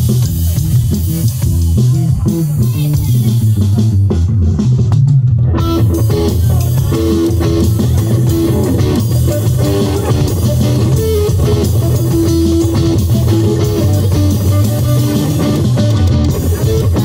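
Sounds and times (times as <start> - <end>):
loud bass line: 0.0 - 17.0
electric guitars playing: 5.4 - 17.0.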